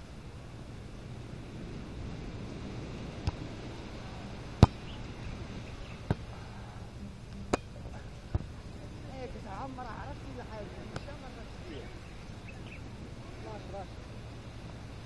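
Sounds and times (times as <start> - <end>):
volleyball hits slapping: 4.6 - 4.9, 7.5 - 7.7.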